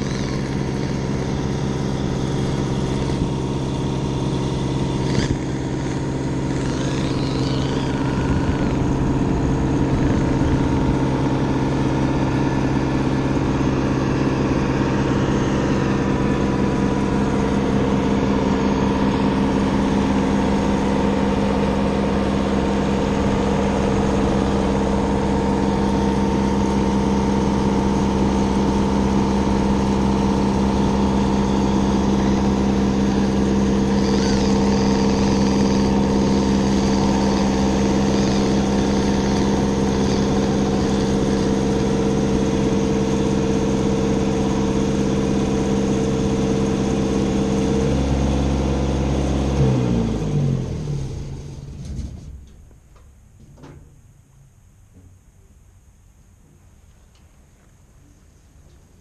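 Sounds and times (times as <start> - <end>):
electric motor and gearbox whining: 0.0 - 53.2.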